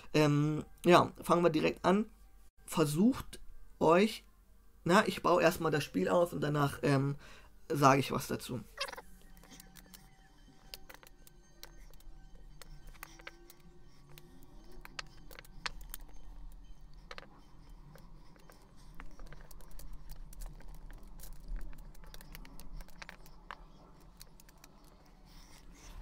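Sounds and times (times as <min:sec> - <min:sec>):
game checkers clicking together: 0:08.8 - 0:25.0.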